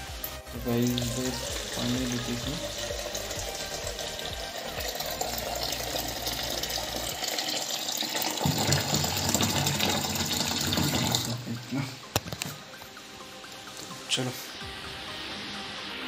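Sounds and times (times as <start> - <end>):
tap water splashing into sink: 2.8 - 11.6.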